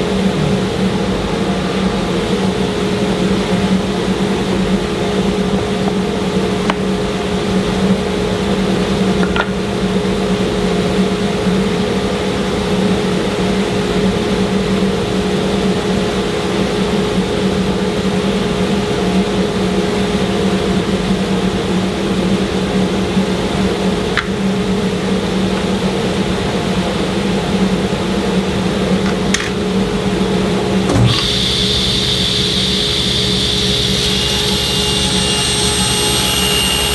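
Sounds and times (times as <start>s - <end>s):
table saw machine hum: 29.7s - 36.9s
dust collector rushing noise: 30.9s - 36.9s.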